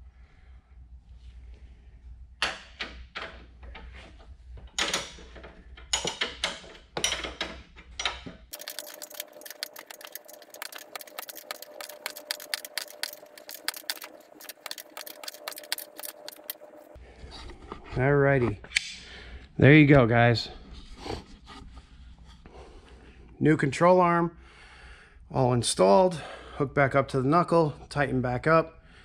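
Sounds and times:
metal tools clattering: 4.8s - 16.6s
ratchet clicking rapidly: 8.5s - 16.6s.

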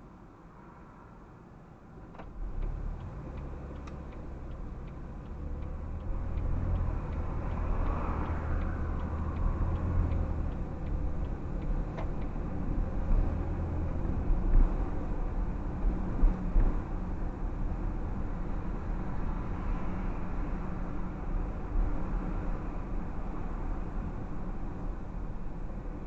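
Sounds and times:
car engine and road rumble: 0.0s - 26.0s
turn signal clicking: 2.2s - 12.8s.

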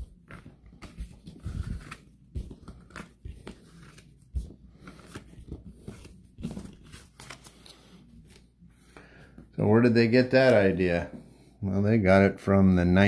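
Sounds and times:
cards rustling: 0.0s - 9.1s.

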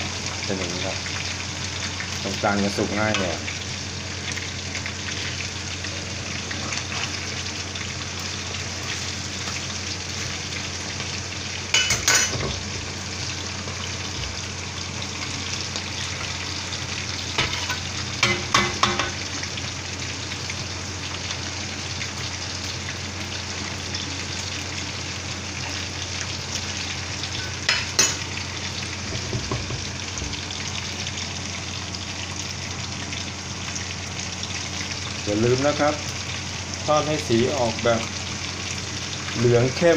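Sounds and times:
wings sizzling in hot oil: 0.0s - 39.9s
spatula scraping wok: 5.9s - 7.3s.

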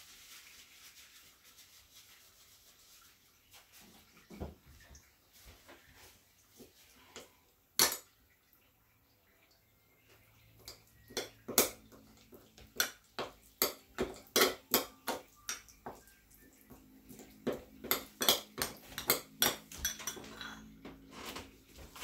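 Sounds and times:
utensils clinking against dishes: 10.6s - 15.8s, 17.4s - 21.1s.

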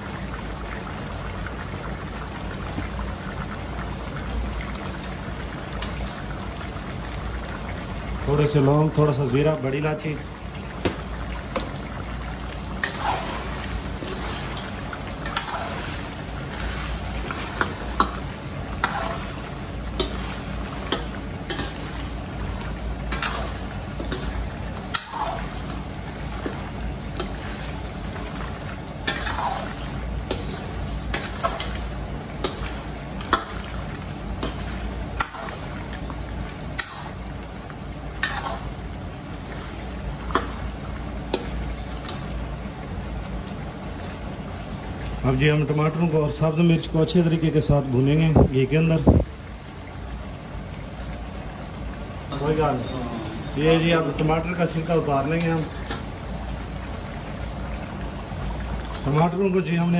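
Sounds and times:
food sizzling in oil: 0.0s - 45.5s, 47.6s - 59.9s
metal spatula scraping pan: 12.8s - 18.2s, 18.8s - 19.4s, 20.0s - 22.0s, 23.1s - 25.8s, 29.0s - 31.8s, 38.2s - 38.7s.

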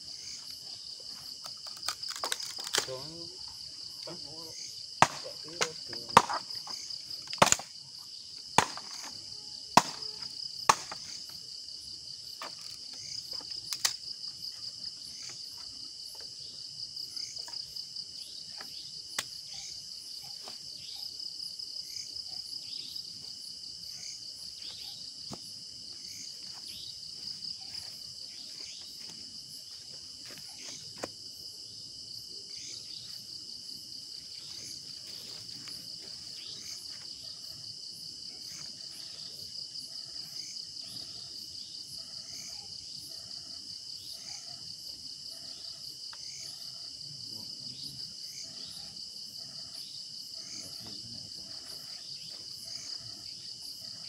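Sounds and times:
crickets chirring: 0.0s - 54.0s
sticks snapping and knocking: 1.5s - 2.9s, 5.0s - 7.7s, 13.6s - 14.0s.

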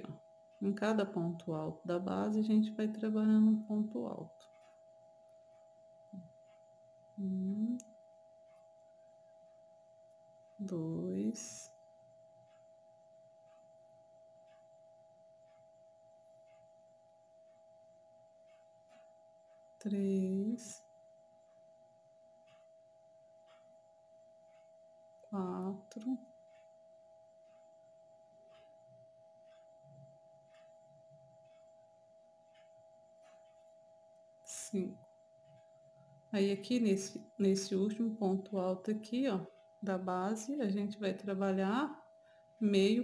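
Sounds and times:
faint high-pitched tone: 0.0s - 5.4s, 6.1s - 15.7s, 18.5s - 20.9s, 25.2s - 43.0s
faint two-note hum: 0.0s - 43.0s
faint soft ticks: 4.3s - 10.6s, 11.4s - 13.8s, 14.4s - 16.7s, 17.3s - 19.9s, 20.5s - 33.8s.

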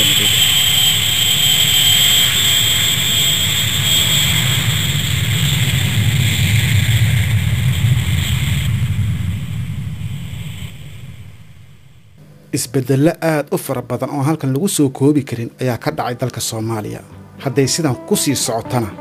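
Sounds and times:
propeller engines droning: 0.0s - 13.1s.

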